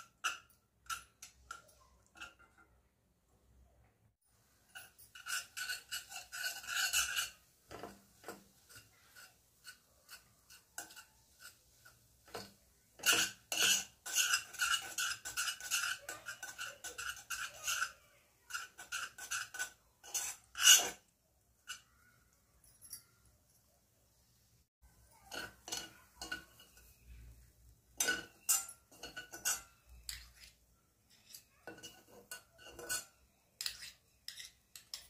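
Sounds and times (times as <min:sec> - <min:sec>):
utensil scraping and stirring in pan: 0:00.0 - 0:02.9, 0:04.3 - 0:22.6, 0:24.8 - 0:35.0.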